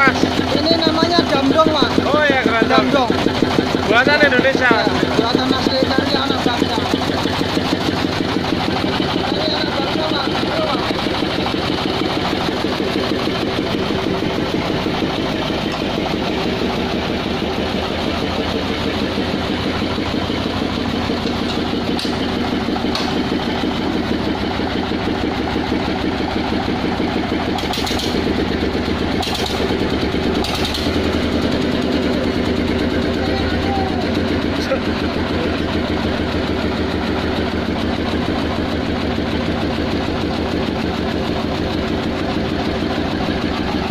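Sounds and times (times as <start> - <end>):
truck engine running: 0.0 - 43.9.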